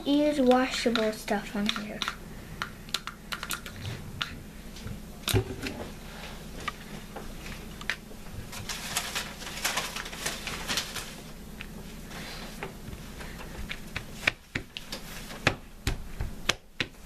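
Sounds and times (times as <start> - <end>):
paper towel rustling: 8.3 - 13.4.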